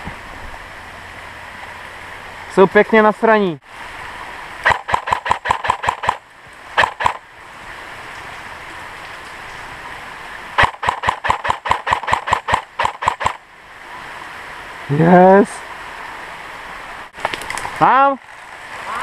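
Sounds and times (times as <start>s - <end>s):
stream water rushing: 0.0s - 19.0s
airsoft rifle firing: 4.7s - 6.2s, 6.8s - 7.2s, 10.6s - 13.4s.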